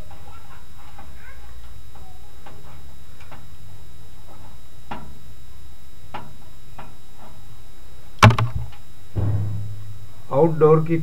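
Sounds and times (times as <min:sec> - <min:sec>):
steady low hum: 0:02.8 - 0:11.0
sharp knock: 0:08.2 - 0:10.3.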